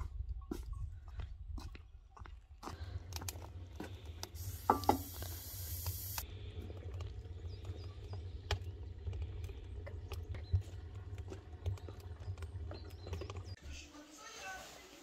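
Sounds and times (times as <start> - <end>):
small birds chirping: 6.2 - 13.7.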